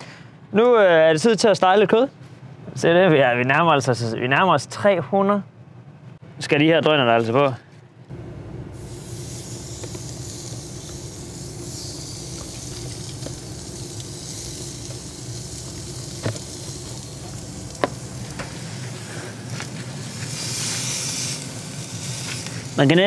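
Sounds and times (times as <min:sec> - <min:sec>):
meat sizzling on a grill: 0:08.8 - 0:23.0.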